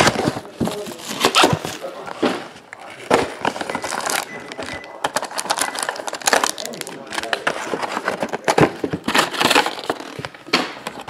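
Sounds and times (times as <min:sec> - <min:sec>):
foil crinkling: 0:00.0 - 0:02.2, 0:02.8 - 0:10.5
cardboard scraping: 0:00.0 - 0:04.2
packaging rustling: 0:00.0 - 0:11.0.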